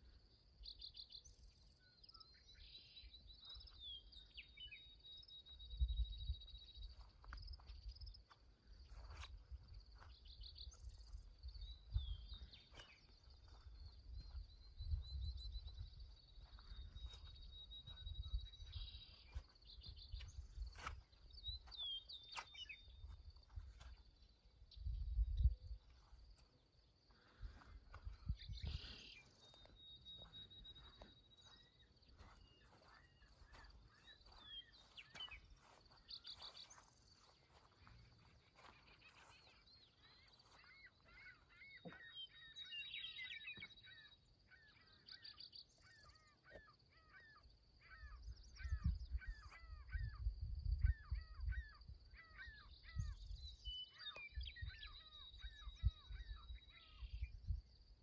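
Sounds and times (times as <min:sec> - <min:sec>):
small birds chirping: 0:00.0 - 0:58.0
wind rumble on microphone: 0:05.6 - 0:08.2, 0:08.9 - 0:21.7, 0:24.7 - 0:26.4, 0:27.2 - 0:29.0, 0:48.1 - 0:58.0.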